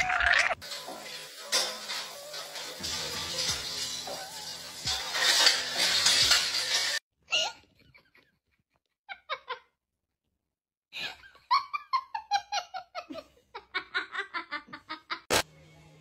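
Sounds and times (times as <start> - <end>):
person laughing: 11.0 - 15.3.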